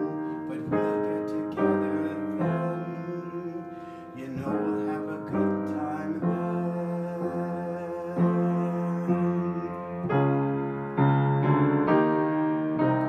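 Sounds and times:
grand piano chords: 0.0 - 13.0.

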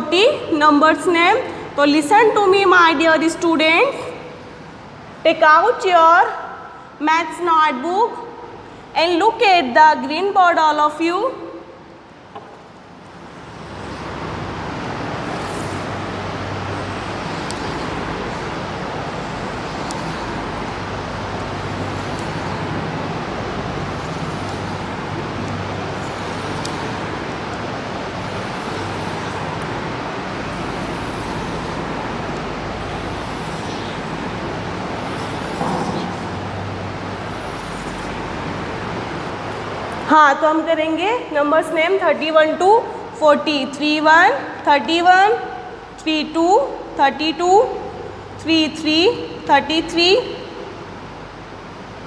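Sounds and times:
steady rushing noise: 12.3 - 40.0.

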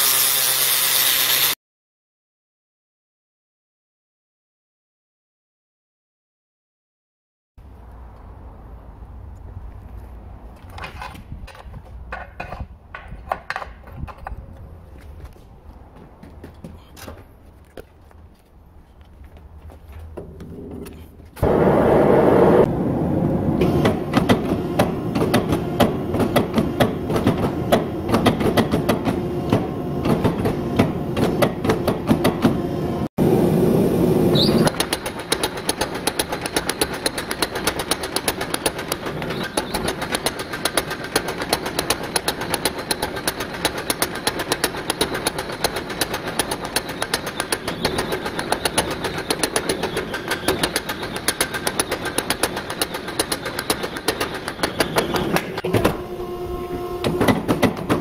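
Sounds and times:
power hammer blows: 21.4 - 32.6, 34.0 - 58.0
gas forge roar: 55.3 - 58.0.

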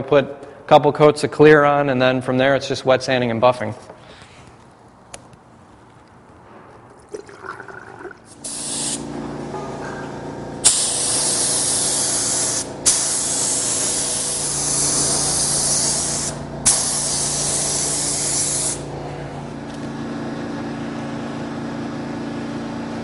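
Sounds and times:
spray gun hissing: 8.4 - 9.0, 10.6 - 18.9.

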